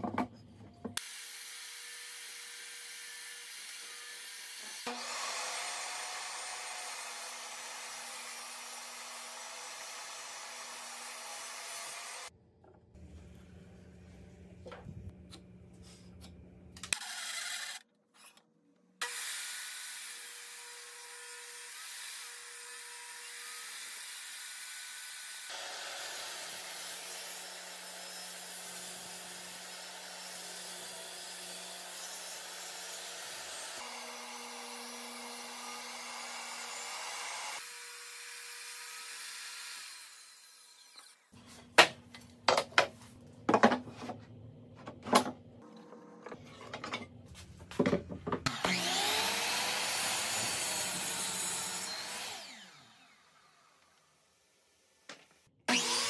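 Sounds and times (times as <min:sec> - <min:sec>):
table saw cutting wood: 0:01.0 - 0:12.3, 0:16.9 - 0:17.8, 0:19.0 - 0:41.9, 0:47.8 - 0:56.0.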